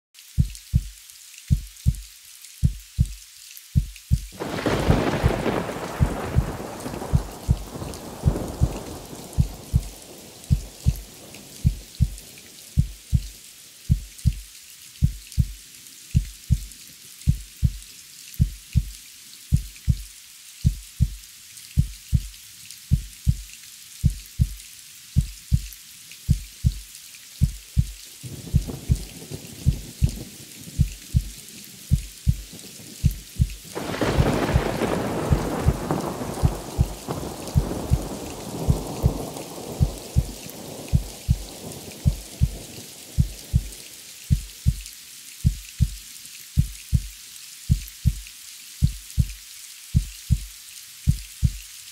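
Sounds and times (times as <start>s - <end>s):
steady rain: 0.2s - 51.9s
heartbeat thumps: 0.4s - 3.2s, 3.8s - 12.2s, 12.8s - 15.6s, 16.2s - 16.7s, 17.3s - 17.8s, 18.4s - 21.2s, 21.8s - 22.3s, 22.9s - 24.6s, 25.2s - 25.7s, 26.3s - 26.8s, 27.4s - 42.6s, 43.2s - 46.0s, 46.6s - 47.1s, 47.7s - 48.2s, 48.8s - 49.4s, 50.0s - 50.5s, 51.1s - 51.6s
thunder rumbling and cracking: 4.4s - 12.2s, 28.3s - 31.3s, 32.2s - 43.8s.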